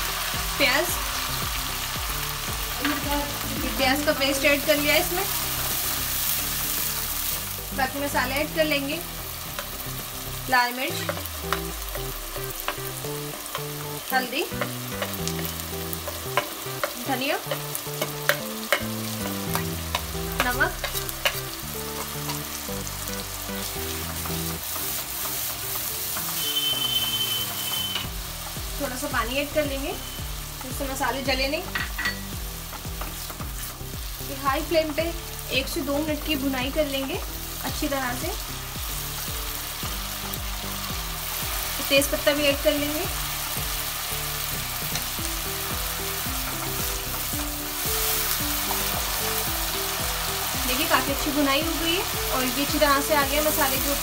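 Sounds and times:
paste sizzling in hot oil: 0.0s - 54.0s
soft background music: 0.0s - 54.0s
wooden spatula stirring: 16.0s - 22.5s.

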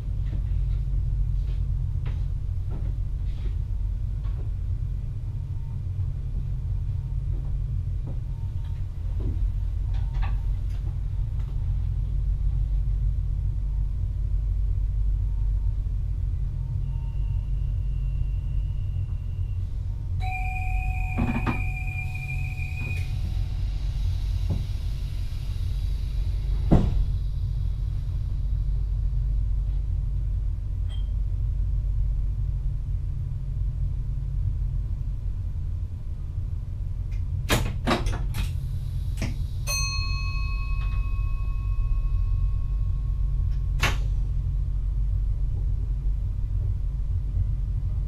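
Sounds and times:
electric train rumble: 0.0s - 48.0s
two-pitch electronic beep: 20.2s - 23.8s
steady tone: 20.2s - 27.8s, 40.0s - 44.7s.

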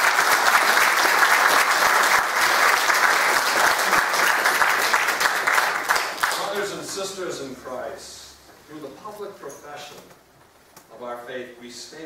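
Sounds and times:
crowd applauding: 0.0s - 6.8s.

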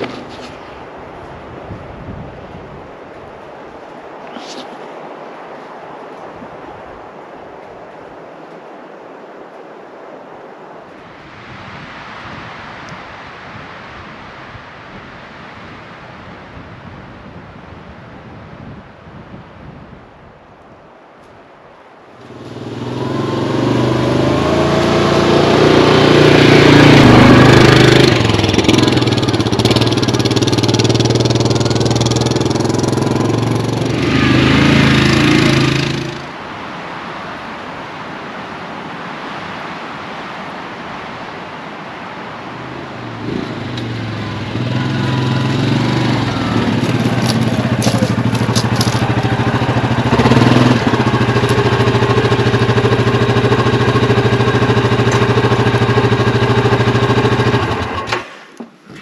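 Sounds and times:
quiet steady rush: 0.0s - 19.1s, 20.0s - 57.2s
atv engine running: 22.2s - 36.3s, 42.6s - 58.4s.

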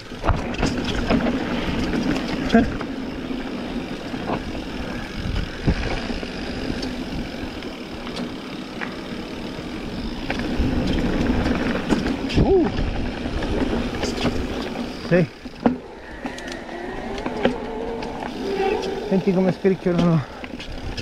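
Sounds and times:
bike clicks and knocks: 0.0s - 21.0s
bike tyres crunching on dirt: 0.0s - 21.0s
wind rush on microphone: 4.2s - 6.1s, 10.3s - 14.7s, 15.8s - 21.0s.

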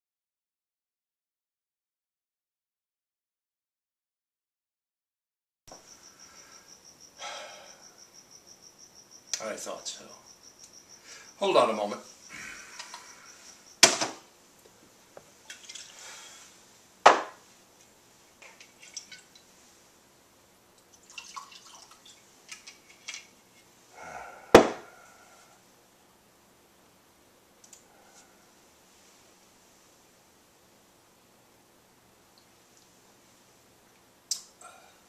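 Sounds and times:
hard objects knocking on desk: 17.1s - 17.4s, 24.6s - 24.8s.

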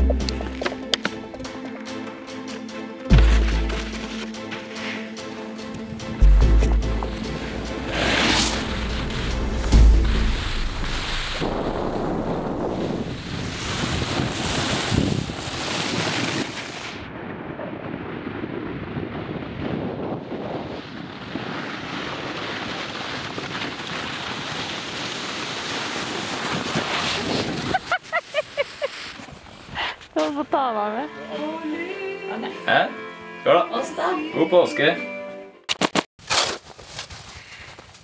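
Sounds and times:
rushing wind: 5.7s - 28.2s.

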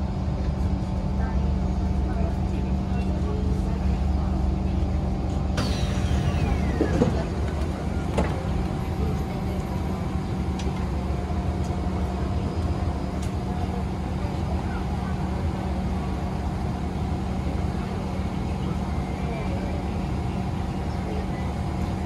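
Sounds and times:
train low hum: 0.0s - 22.0s
train doors sliding open: 5.6s - 9.8s
falling whine: 5.6s - 10.8s.

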